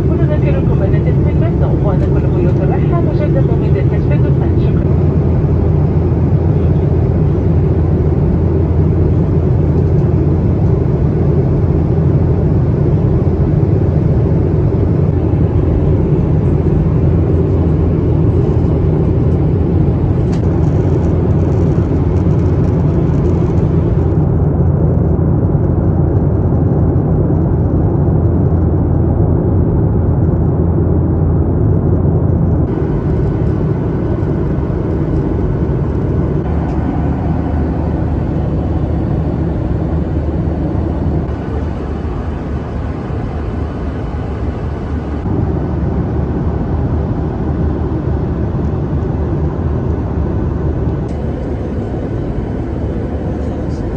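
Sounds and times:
airplane cabin noise: 0:00.0 - 0:53.9
jet engines droning: 0:00.0 - 0:53.9
airflow rush: 0:32.6 - 0:47.8, 0:50.0 - 0:53.9.

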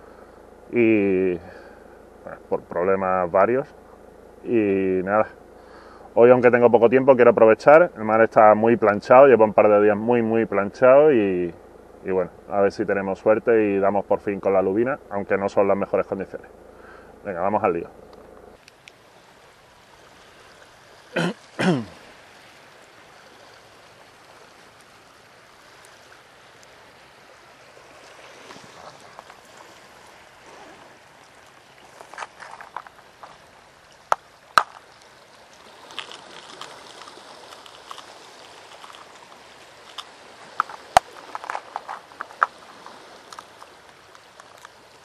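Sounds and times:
calm sea water: 0:00.0 - 0:45.0.

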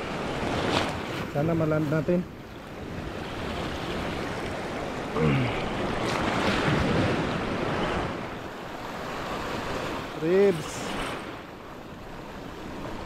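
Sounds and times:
falling vocal grunt: 0:05.2 - 0:05.7.

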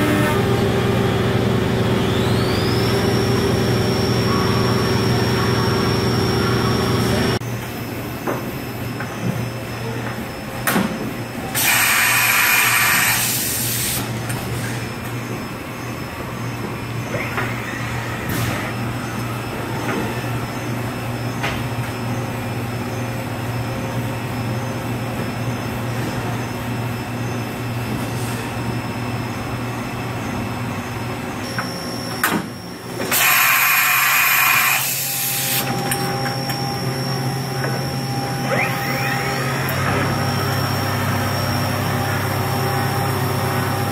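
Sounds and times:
milling machine motor hum: 0:00.0 - 0:07.4, 0:29.0 - 0:43.9
steady high whine: 0:14.0 - 0:43.9.

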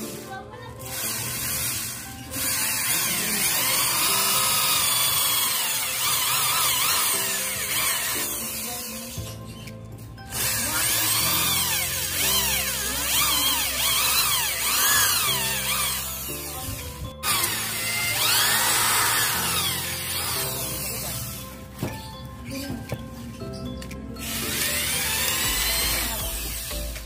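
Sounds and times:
background music: 0:00.0 - 0:27.0
electric drill boring wood: 0:00.8 - 0:09.7, 0:10.3 - 0:21.9, 0:24.2 - 0:27.0.

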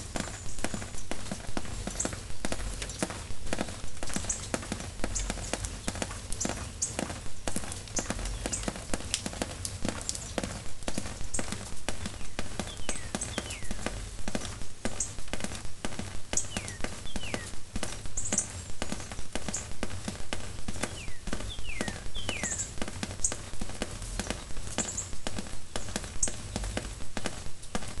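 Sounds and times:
raindrops tapping: 0:00.0 - 0:28.0.

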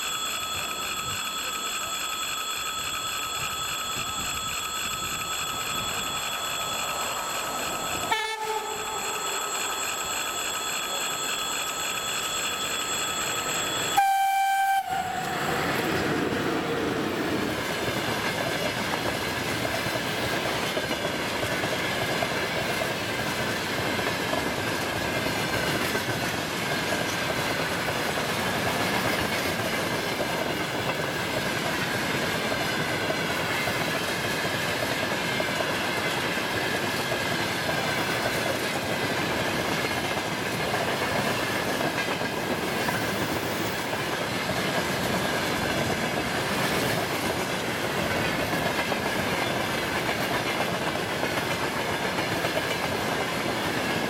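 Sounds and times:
steady high tone: 0:00.0 - 0:20.1
train wheels rumbling on rails: 0:00.0 - 0:54.0.

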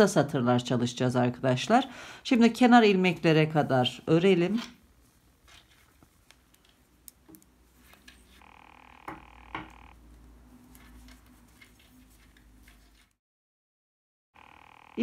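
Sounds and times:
knitting needles clicking: 0:06.0 - 0:08.0
steady multi-pitch tone: 0:08.4 - 0:10.0.

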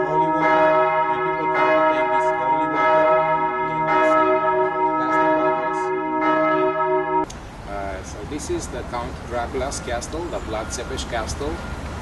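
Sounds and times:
church bell ringing: 0:00.0 - 0:07.3.

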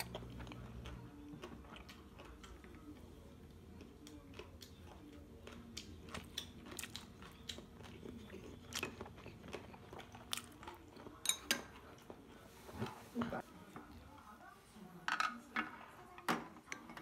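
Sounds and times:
chewing and crunching food: 0:00.0 - 0:12.5.

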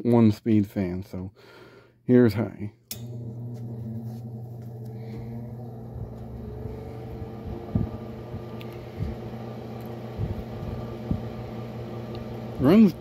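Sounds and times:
desk fan motor humming: 0:03.0 - 0:13.0
low thumps: 0:04.6 - 0:11.6.

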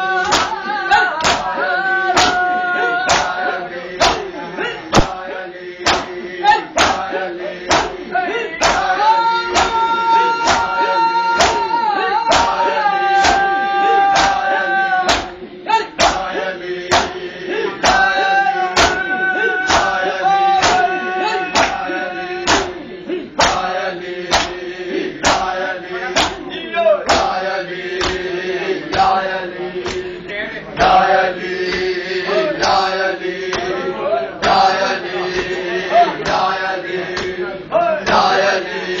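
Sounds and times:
men chanting in unison: 0:00.0 - 0:39.0
hands slapping bare chests: 0:00.2 - 0:00.6, 0:01.2 - 0:01.5, 0:03.1 - 0:03.4, 0:05.8 - 0:06.1, 0:06.8 - 0:07.1, 0:08.6 - 0:08.9, 0:14.2 - 0:14.4, 0:16.9 - 0:17.2, 0:19.7 - 0:20.0, 0:20.6 - 0:20.9, 0:22.5 - 0:22.7, 0:24.3 - 0:24.6, 0:25.2 - 0:25.5.

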